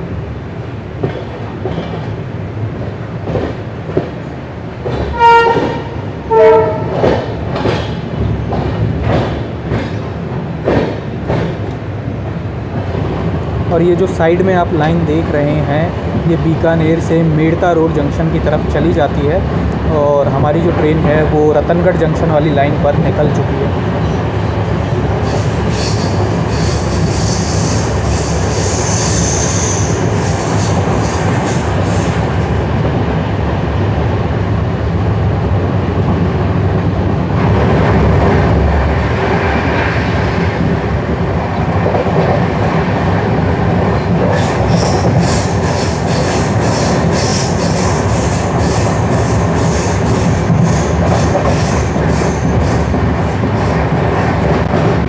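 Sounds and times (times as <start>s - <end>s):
train wheels rumbling on rail: 0.0s - 55.0s
high wheel squeal: 24.9s - 32.2s, 44.3s - 52.8s.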